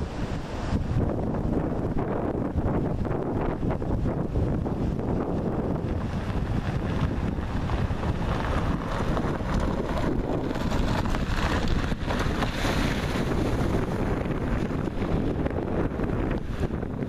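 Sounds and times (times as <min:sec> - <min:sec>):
car driving on gravel: 0:00.0 - 0:17.0
wind buffeting microphone: 0:00.0 - 0:17.0
car splashing through water: 0:05.4 - 0:16.7.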